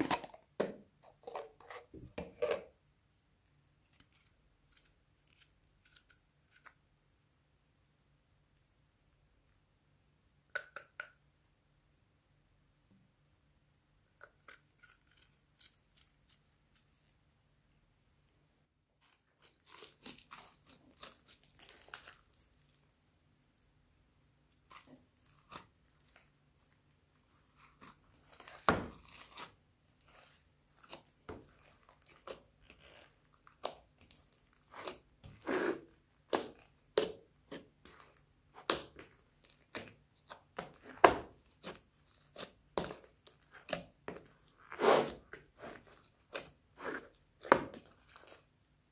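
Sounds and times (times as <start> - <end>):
slime crackling and squelching: 19.0 - 23.7, 24.5 - 48.6.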